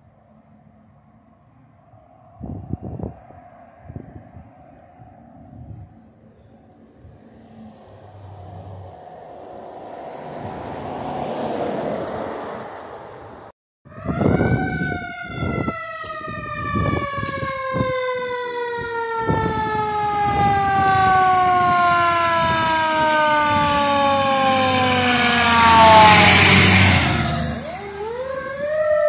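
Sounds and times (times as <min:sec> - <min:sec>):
truck engine and road noise: 0:00.0 - 0:29.0
fire engine siren wailing: 0:13.9 - 0:29.0.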